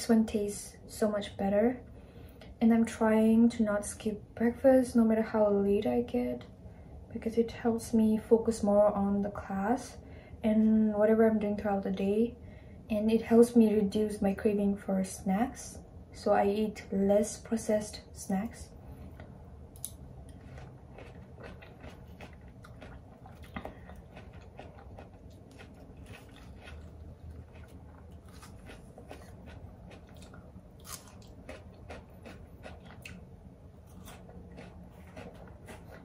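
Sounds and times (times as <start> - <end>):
chewing and crunching fruit: 18.9 - 36.0.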